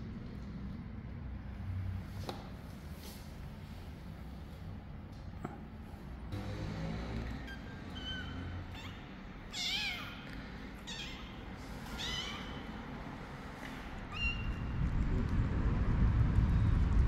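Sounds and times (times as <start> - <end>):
low outdoor rumble: 0.0 - 17.0
kitten meowing: 7.4 - 12.9, 14.0 - 14.7.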